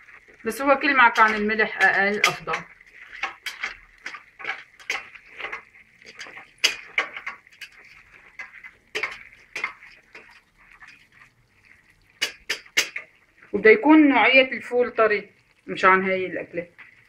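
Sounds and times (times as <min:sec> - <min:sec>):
spoon scraping metal pot: 0:00.0 - 0:13.6.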